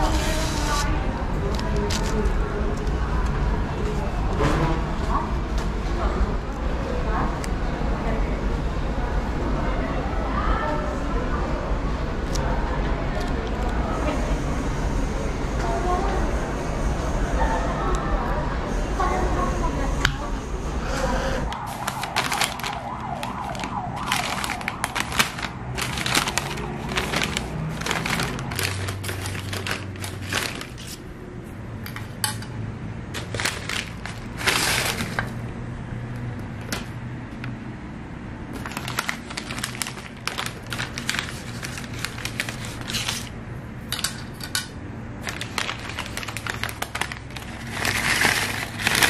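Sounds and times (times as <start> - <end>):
paper bags rustling: 0.0 - 3.0, 21.5 - 31.1, 33.1 - 35.4, 38.5 - 49.0.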